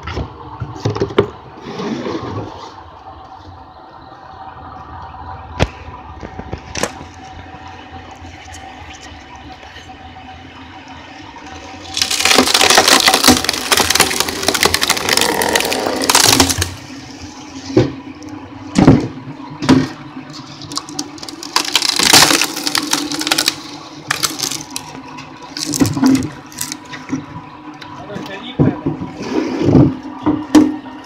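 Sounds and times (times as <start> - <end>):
wood crackling and splintering: 5.6 - 10.0, 10.8 - 28.4
sharp wood cracks: 11.8 - 16.8, 19.8 - 26.9.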